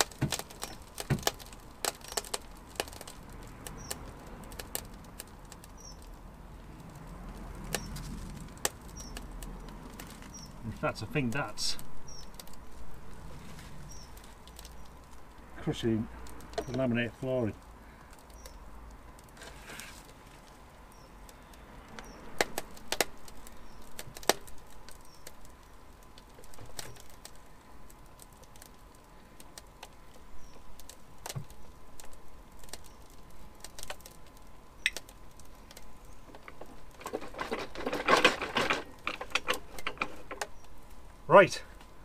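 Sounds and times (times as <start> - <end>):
flooring boards creaking and cracking: 0.0 - 6.2, 6.8 - 10.7, 19.2 - 20.6, 21.3 - 28.8, 29.6 - 40.8
scraping and clattering: 36.3 - 40.5.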